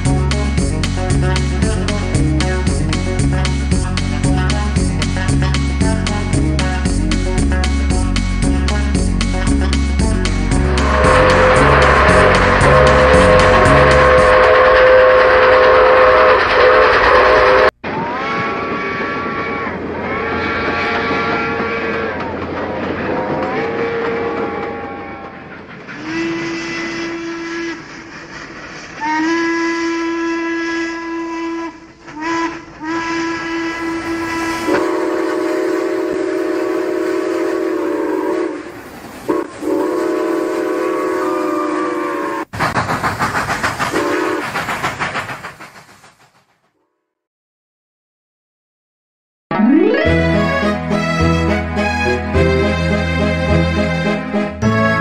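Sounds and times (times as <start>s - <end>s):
fast even pulsing: 10.0s - 17.7s, 42.5s - 46.5s
steam train whistle blasts: 10.6s - 19.3s, 26.0s - 28.2s, 29.0s - 42.5s, 44.0s - 44.5s.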